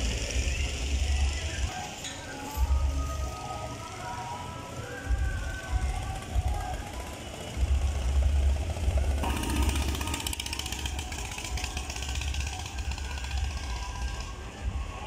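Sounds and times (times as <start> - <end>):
go-kart engine passing by: 3.3 - 15.0.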